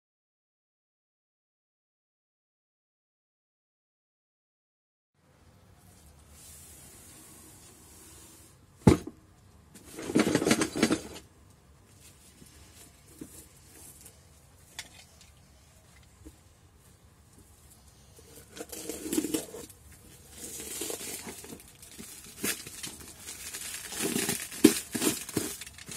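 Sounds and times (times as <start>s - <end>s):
sharp knock on box: 8.8s - 9.2s
plastic wrap crinkling: 18.4s - 25.9s.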